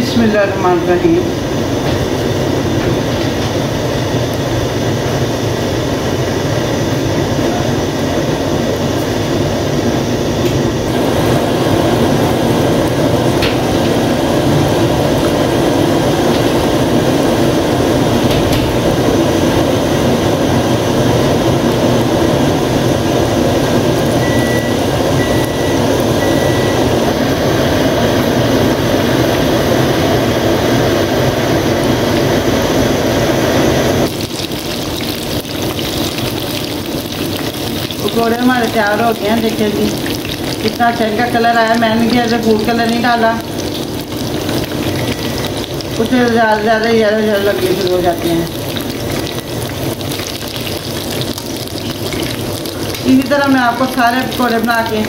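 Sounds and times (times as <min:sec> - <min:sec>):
food deep-frying in hot oil: 0:00.0 - 0:55.0.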